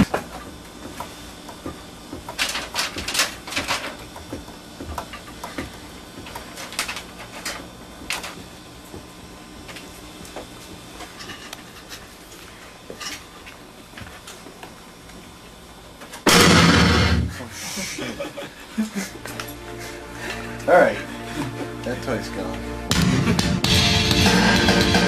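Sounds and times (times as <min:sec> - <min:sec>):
faint hum: 0:00.0 - 0:25.0
printer paper rustling: 0:02.3 - 0:04.1.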